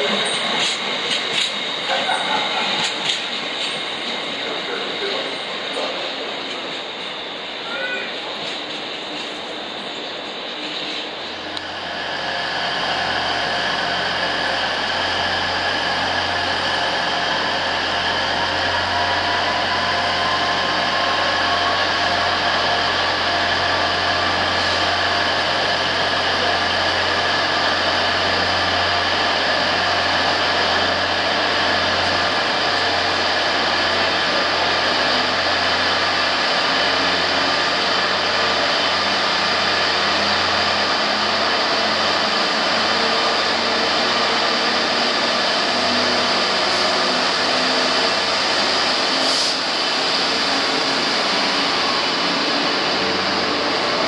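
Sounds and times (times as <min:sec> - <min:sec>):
diesel train engines running: 0:00.0 - 0:54.0.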